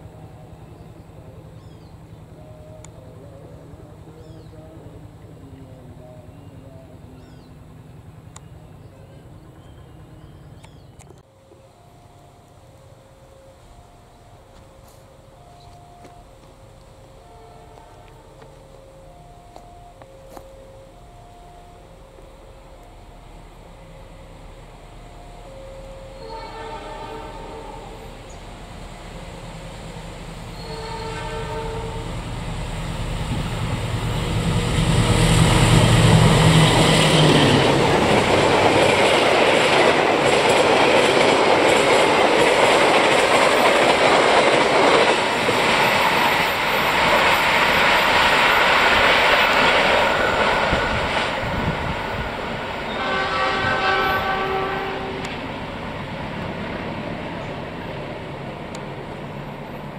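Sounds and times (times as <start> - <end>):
locomotive engine rumble: 0.0 - 59.9
train horn blast: 17.2 - 19.1, 25.4 - 28.4, 30.5 - 32.3, 52.8 - 55.5
train wheels clattering on rails: 35.5 - 54.6.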